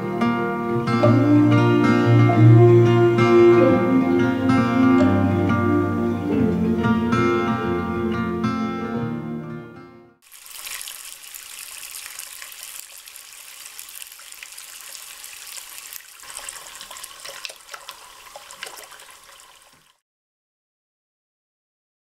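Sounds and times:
guitar music: 0.0 - 10.2
shallow stream trickling: 10.2 - 20.0.

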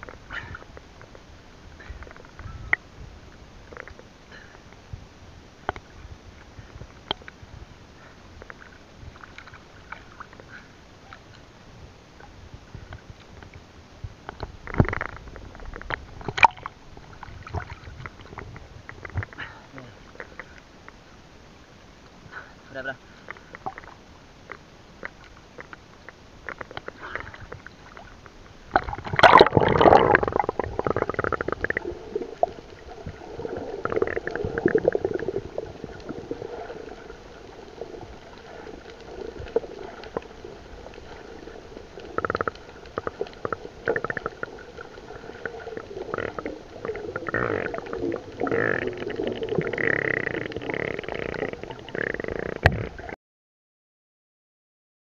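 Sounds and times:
rush of water: 0.0 - 53.2
underwater gurgling and sloshing: 0.0 - 53.2.

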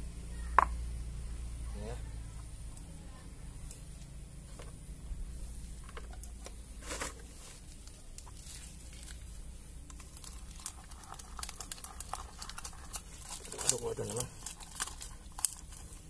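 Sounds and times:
rustle: 0.0 - 16.0
sticky clicking and tearing: 9.9 - 16.0.

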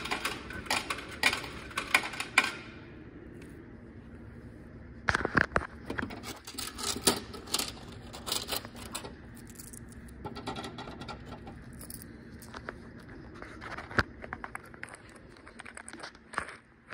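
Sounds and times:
hand rattling vending machine flap: 0.0 - 2.7, 5.9 - 9.2, 10.2 - 11.6.

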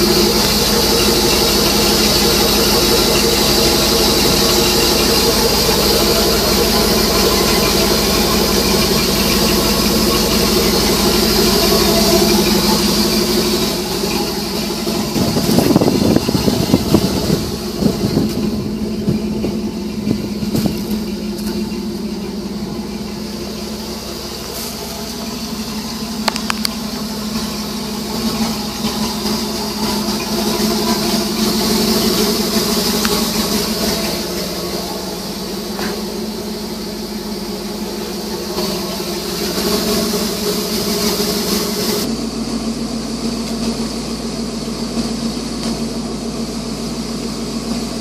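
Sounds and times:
knocks and rattles: 0.0 - 23.7
truck engine idling: 0.0 - 48.0.

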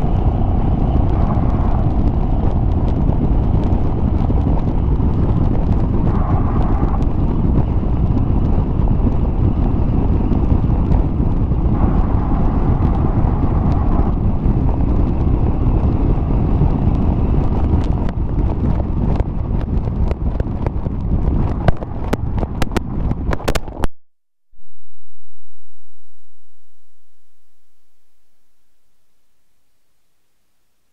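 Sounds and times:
car engine exhaust cruising: 0.0 - 23.9, 25.1 - 30.4
wind rushing over microphone: 0.0 - 23.9
sharp clicks and pops: 16.9 - 24.0.

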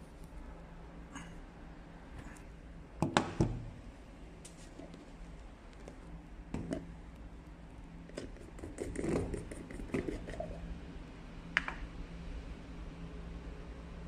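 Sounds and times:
low steady hum: 0.0 - 14.0
mixing cup knocks and scrapes: 6.6 - 6.9, 8.1 - 10.6.

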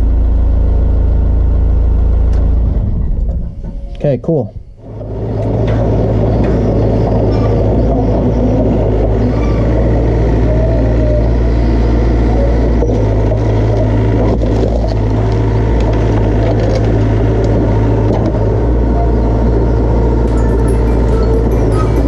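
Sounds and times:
excavator diesel engine running: 4.7 - 22.0.

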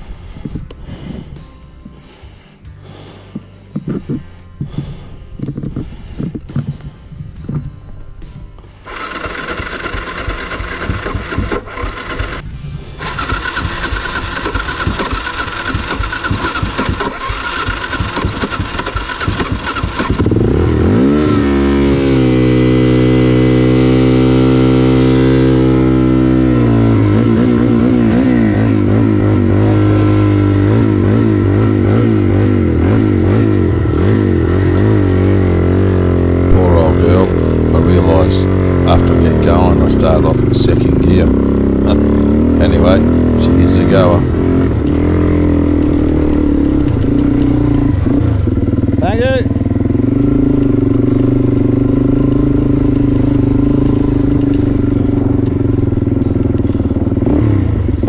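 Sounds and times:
deep steady musical drone: 0.0 - 58.0
motorbike starter cranking: 8.8 - 21.5, 37.4 - 58.0.

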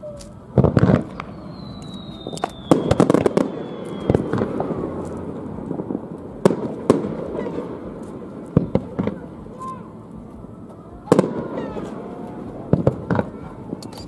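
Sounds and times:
falling firework whistle: 0.0 - 5.0
fireworks bangs: 0.0 - 14.0.

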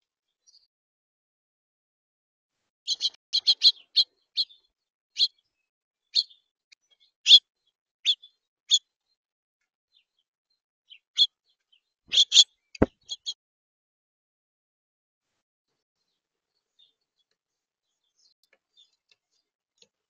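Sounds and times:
small songbirds chirping: 0.2 - 0.7, 2.9 - 9.2, 9.9 - 13.4, 16.0 - 20.0.

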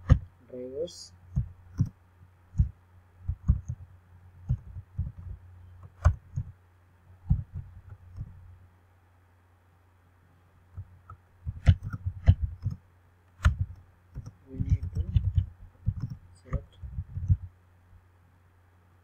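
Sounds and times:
steady low hum: 0.0 - 19.0
keyboard keystrokes: 1.3 - 2.0, 4.4 - 6.5, 10.8 - 12.8, 13.4 - 17.5.

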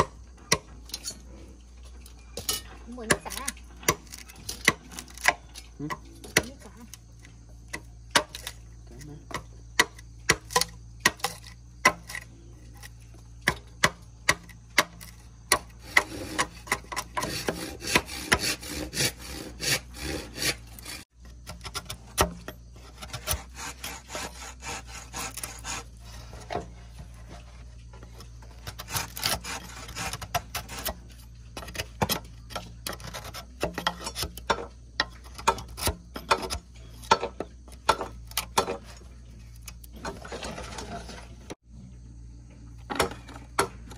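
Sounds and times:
machete chopping bamboo: 0.0 - 0.8, 3.0 - 7.0, 7.7 - 8.6, 9.3 - 12.3, 13.4 - 25.9, 33.4 - 38.9.

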